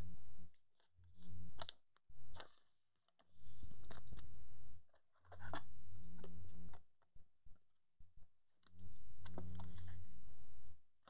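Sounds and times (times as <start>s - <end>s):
low electrical buzz: 0.0s - 2.4s, 3.3s - 11.0s.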